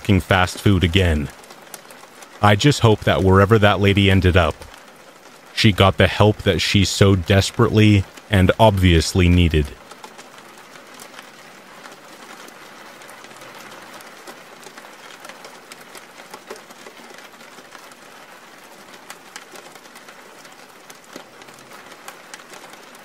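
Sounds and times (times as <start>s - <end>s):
faint steady hiss: 0.0s - 9.8s
scattered ticks and crackles: 1.2s - 2.5s, 4.5s - 5.6s, 9.8s - 23.0s.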